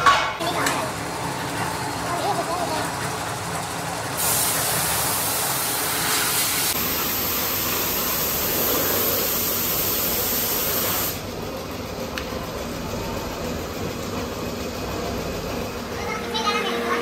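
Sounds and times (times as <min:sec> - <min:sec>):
loud rushing hiss: 0:04.2 - 0:11.3.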